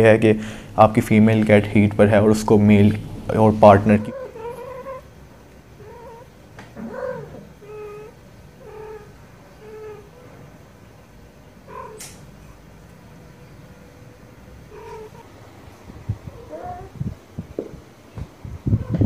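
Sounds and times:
cat yowling: 3.9 - 5.1, 5.8 - 10.3, 11.6 - 12.6, 14.7 - 15.4, 16.2 - 17.0
sharp click: 12.0 - 12.3.

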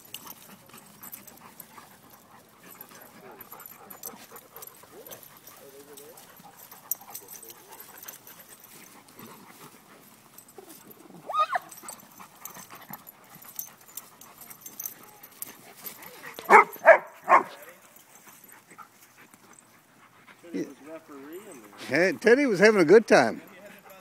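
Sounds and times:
dog yelping: 11.2 - 12.0, 16.1 - 17.7
dog barking: 16.5 - 17.7.

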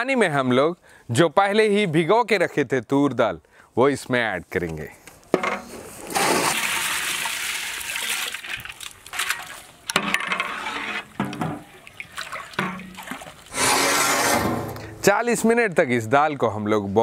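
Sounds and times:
water splashing into pot: 6.1 - 10.2, 11.1 - 13.6.

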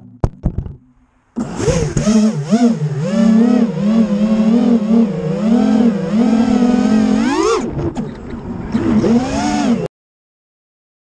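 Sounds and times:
drone motors whining: 1.4 - 9.9.

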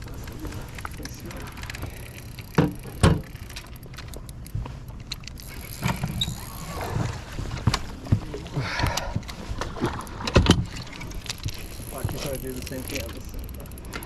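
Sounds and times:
knocks inside a boat: 7.6 - 10.7.

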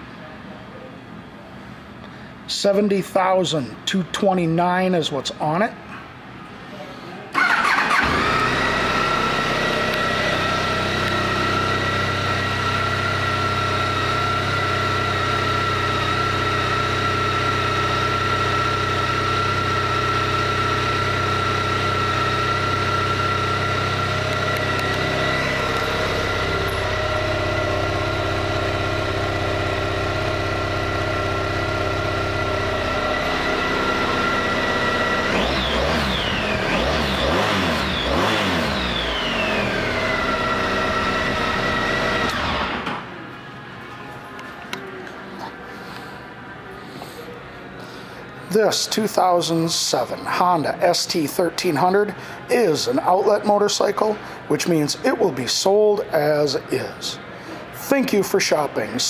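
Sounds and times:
motorcycle engine starting and idling: 7.3 - 43.2
engine revving: 7.4 - 43.0.

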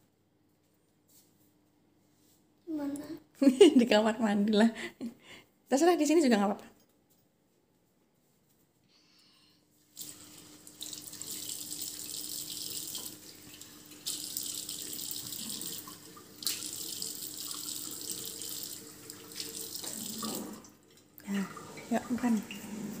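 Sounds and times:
water running from sink tap: 10.0 - 23.0.

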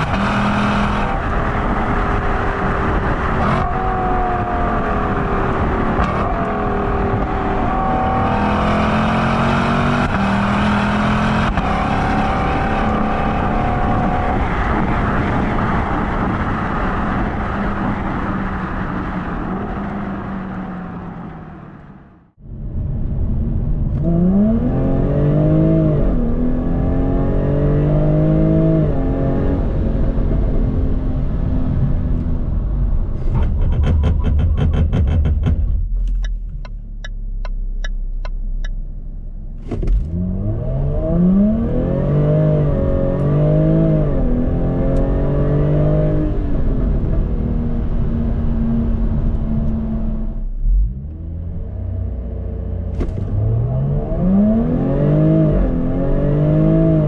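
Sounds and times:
sports car engine accelerating: 0.0 - 22.2, 23.4 - 57.0
low rumble: 12.5 - 26.6, 29.8 - 42.0
sharp clicks and ticks: 33.3 - 38.8.

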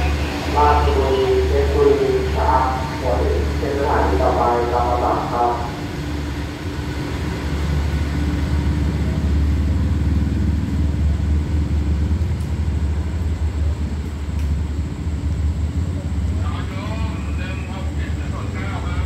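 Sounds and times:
train rumbling: 0.0 - 19.0.

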